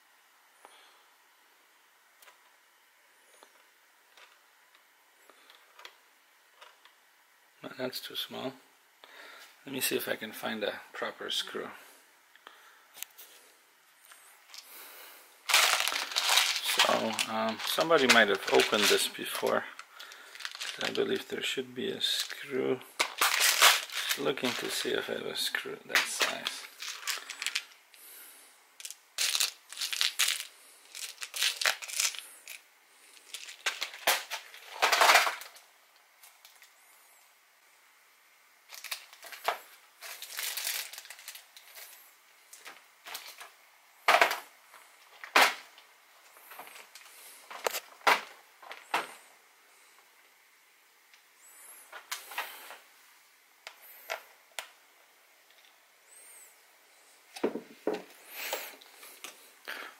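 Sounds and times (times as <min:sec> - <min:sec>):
metal screws clattering in plastic box: 0:15.5 - 0:19.6, 0:20.3 - 0:21.0, 0:26.0 - 0:27.8, 0:28.8 - 0:32.6, 0:33.2 - 0:35.6
small tools clicking and rustling: 0:15.5 - 0:21.0, 0:26.0 - 0:27.8.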